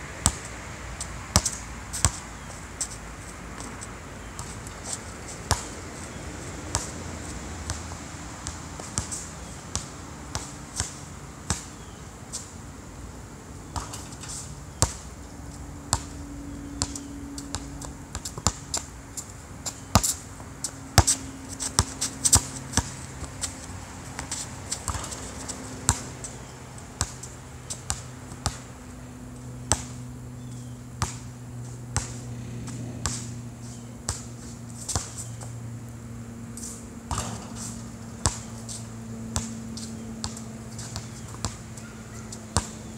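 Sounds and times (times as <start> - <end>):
basketball bouncing on hard court: 0.2 - 0.5, 1.3 - 2.2, 5.4 - 5.8, 15.9 - 18.9, 20.9 - 23.6, 24.2 - 28.6, 29.6 - 35.2, 37.1 - 42.8.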